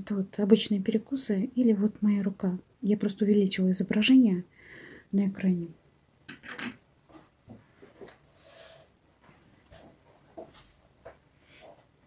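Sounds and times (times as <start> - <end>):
fabric rustling: 7.1 - 11.8.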